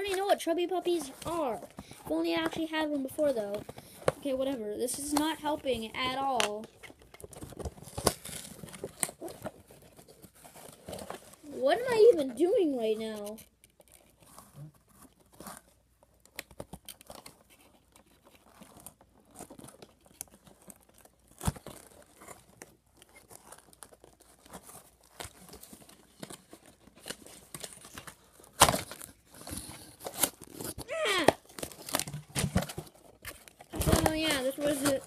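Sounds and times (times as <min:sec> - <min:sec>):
cardboard packaging tearing and crinkling: 0:06.1 - 0:11.5, 0:13.3 - 0:35.0
cardboard ripping: 0:06.4 - 0:11.5, 0:13.9 - 0:35.0.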